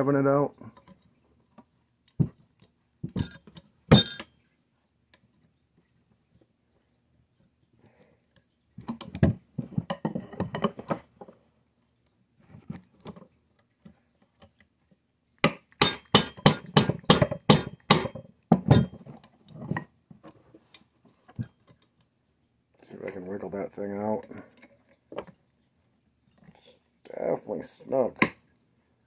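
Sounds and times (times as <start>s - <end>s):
hammer tapping metal punch: 15.8s - 19.0s.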